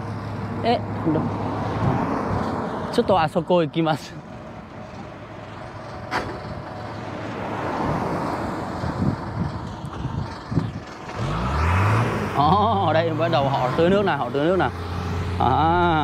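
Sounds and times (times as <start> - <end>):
truck engine running: 3.0 - 7.5, 8.2 - 16.0.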